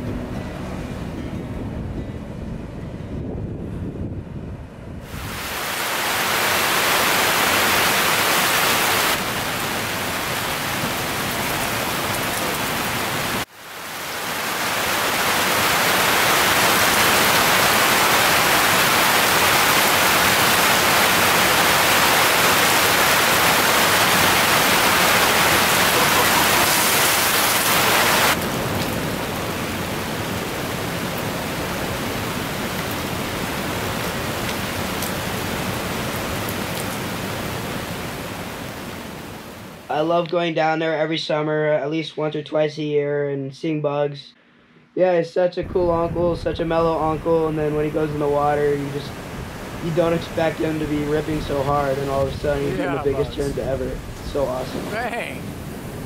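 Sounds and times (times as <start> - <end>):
breaking surf: 5.0 - 13.5, 14.1 - 35.8, 45.7 - 56.0.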